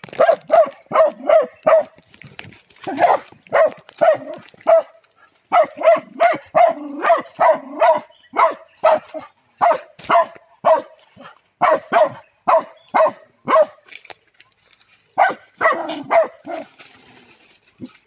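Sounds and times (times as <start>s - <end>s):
dog barking rapidly: 0.2s - 2.0s, 2.9s - 13.8s, 15.2s - 16.7s.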